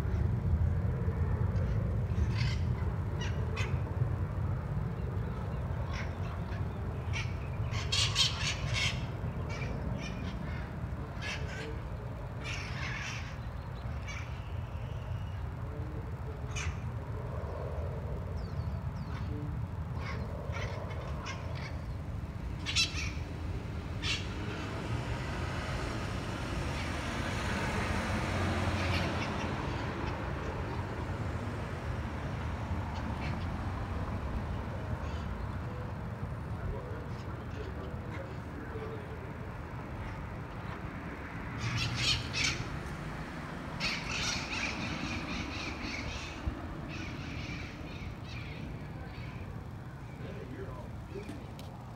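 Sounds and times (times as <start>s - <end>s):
parrots squawking: 5.8s - 14.4s, 19.9s - 23.4s, 24.0s - 24.7s, 39.9s - 42.8s, 43.8s - 49.5s.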